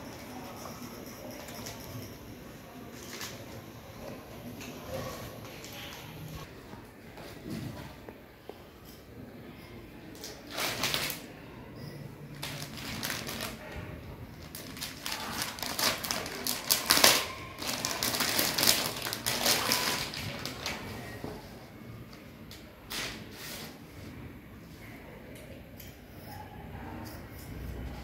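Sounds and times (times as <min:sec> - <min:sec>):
plastic and paper crinkling: 0:10.2 - 0:11.2, 0:12.4 - 0:21.4.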